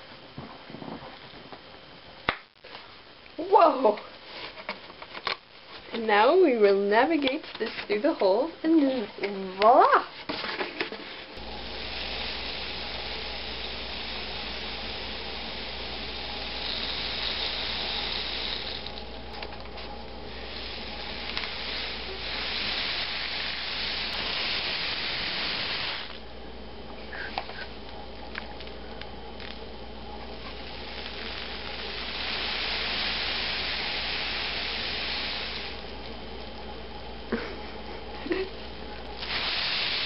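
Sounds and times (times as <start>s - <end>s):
rain stick trickling hiss: 11.4s - 19.1s, 19.8s - 26.2s, 30.2s - 35.9s, 39.2s - 40.0s.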